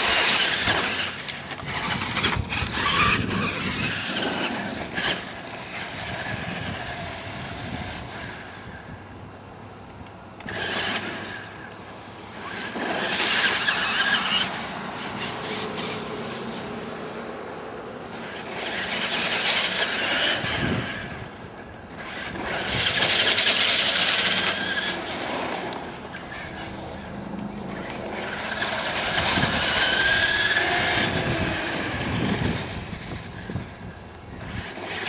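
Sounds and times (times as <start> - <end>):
electric motor whine: 0.0 - 35.0.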